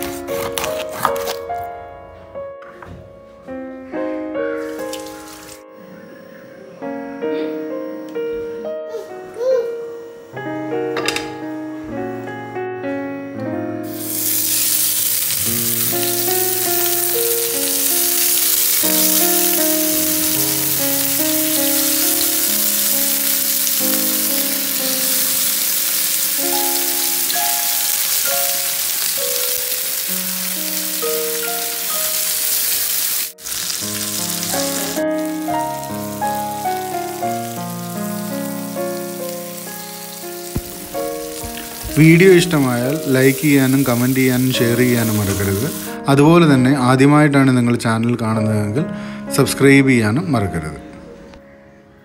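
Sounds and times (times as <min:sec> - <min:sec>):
background piano music: 0:00.0 - 0:52.0
fish sizzling in oil: 0:13.8 - 0:46.0.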